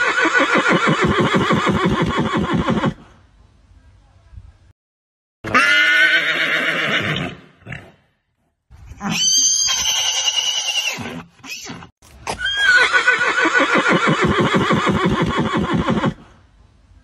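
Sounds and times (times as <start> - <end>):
horse neighing: 0.0 - 3.1, 5.5 - 8.0, 9.0 - 16.3.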